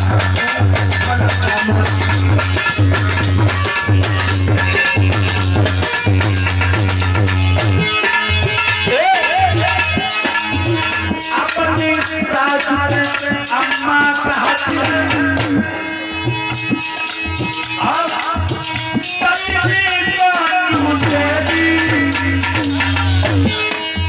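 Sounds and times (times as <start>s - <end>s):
hand drum: 0.0s - 24.0s.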